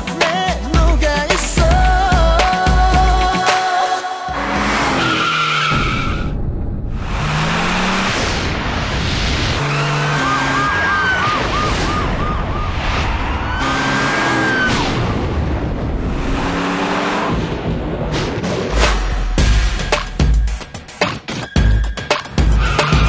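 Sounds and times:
vehicle noise: 0:04.3 - 0:23.0
warbling siren: 0:09.6 - 0:15.0.

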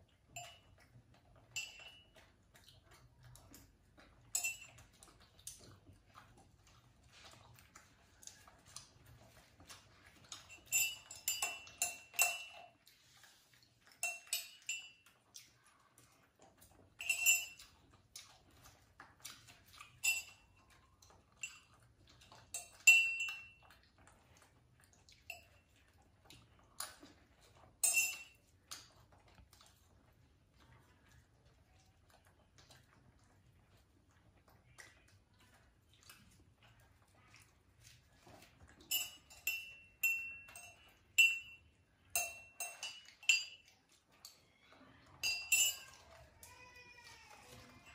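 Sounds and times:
metal dishware clinking: 0:45.2 - 0:46.0.

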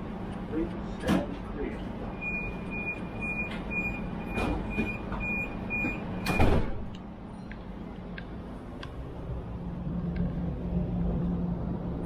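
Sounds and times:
high-pitched door warning beeps: 0:02.1 - 0:06.8
sliding doors closing with a thud: 0:03.4 - 0:06.9
train humming: 0:08.0 - 0:12.0.

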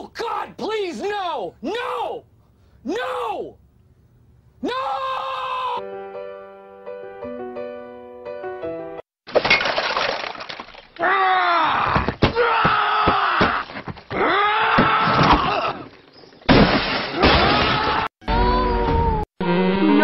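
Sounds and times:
person yelling: 0:00.0 - 0:02.2, 0:02.8 - 0:03.6, 0:04.6 - 0:05.8
cartoon crashing and smashing: 0:09.3 - 0:11.0, 0:14.8 - 0:18.1.

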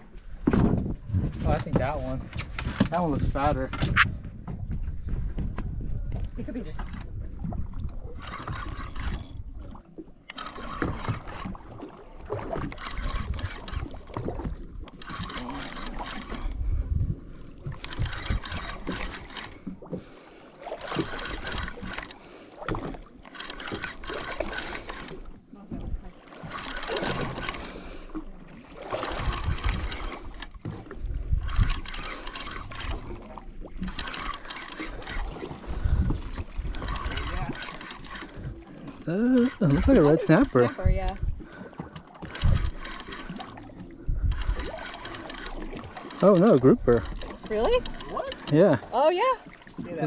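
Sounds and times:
wind rumbling on microphone: 0:00.0 - 0:19.8, 0:28.8 - 0:41.6, 0:42.2 - 0:45.9
water sloshing against boat hull: 0:00.0 - 0:50.0
fishing reel being cranked: 0:07.9 - 0:25.4, 0:26.3 - 0:49.5.

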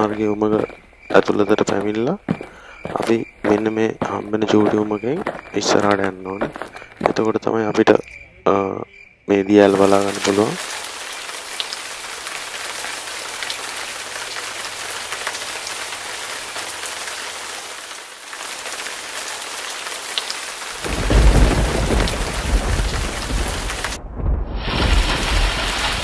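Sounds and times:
falling water hissing: 0:09.6 - 0:24.0, 0:24.6 - 0:26.0
deep rumbling water rush: 0:20.7 - 0:26.0.

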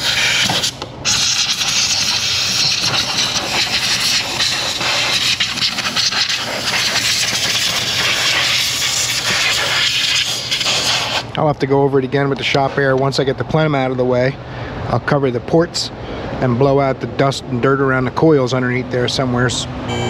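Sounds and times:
air blow gun hissing: 0:00.0 - 0:11.4.

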